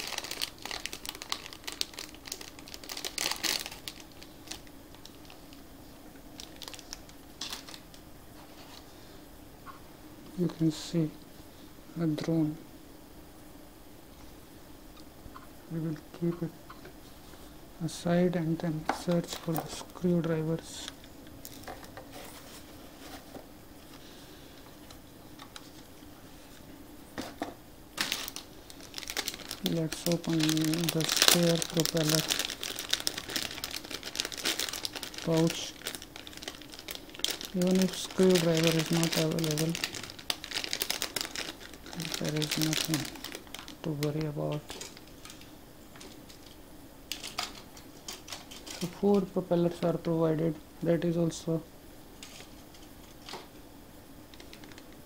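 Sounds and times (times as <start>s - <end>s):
plastic packet crinkling: 0.0s - 5.6s, 6.3s - 8.0s, 28.0s - 49.2s, 54.3s - 54.9s
faint room hum: 0.0s - 55.0s.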